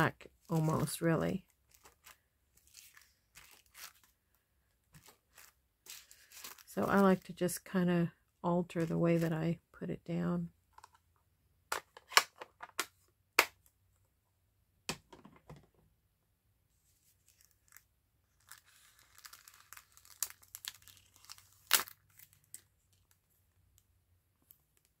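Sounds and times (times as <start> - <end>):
paper rustling and crinkling: 1.6 - 4.2, 5.0 - 7.2, 18.4 - 23.1.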